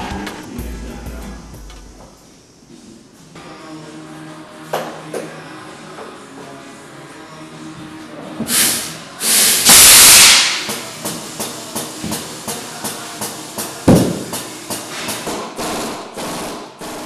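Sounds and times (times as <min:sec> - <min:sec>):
compressed air hissing into tyre: 0:08.4 - 0:13.6
short bursts of air: 0:08.5 - 0:13.6, 0:14.7 - 0:17.0.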